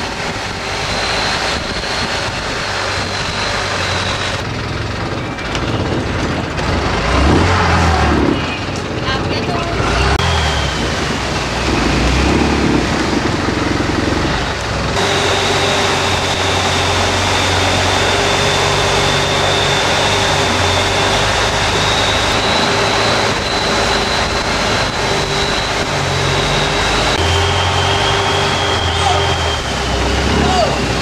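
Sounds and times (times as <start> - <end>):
motor vehicle running: 0.0 - 31.0
steady high-pitched tone: 15.0 - 30.5.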